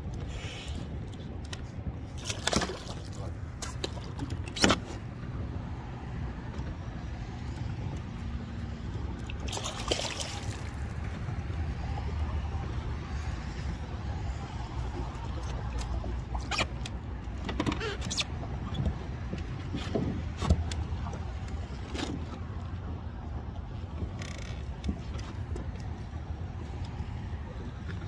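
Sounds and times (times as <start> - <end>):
gear clicks and knocks: 24.0 - 27.0.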